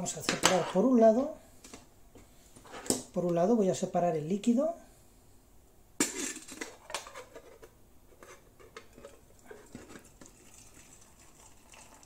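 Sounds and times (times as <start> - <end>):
liquid trickling into steel mug: 9.6 - 12.0.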